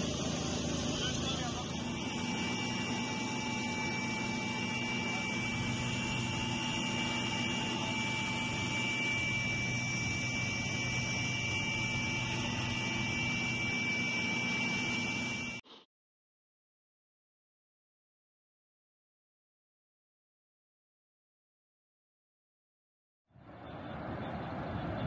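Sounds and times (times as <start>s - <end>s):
helicopter engine and rotor drone: 0.0s - 15.7s, 23.4s - 25.0s.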